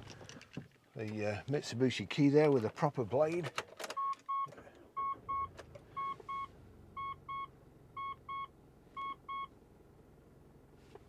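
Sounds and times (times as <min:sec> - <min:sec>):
dashboard warning chime double beeps: 0:04.0 - 0:09.5.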